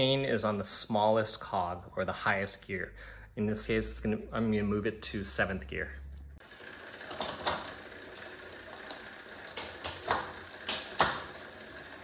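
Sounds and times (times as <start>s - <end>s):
bicycle freewheel ratcheting: 6.4s - 12.0s
chain clicking across cogs: 6.4s - 12.0s.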